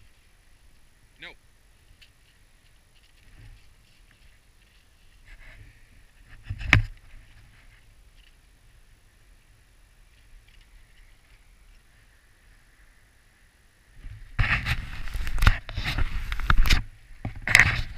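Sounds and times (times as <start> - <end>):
camera handling rustling and knocks: 6.2 - 7.5, 14.4 - 17.9.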